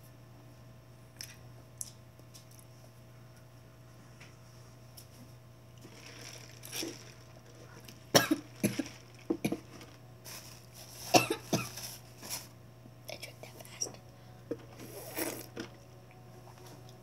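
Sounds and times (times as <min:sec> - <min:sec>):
girl coughing: 0:08.1 - 0:09.6, 0:11.1 - 0:11.8.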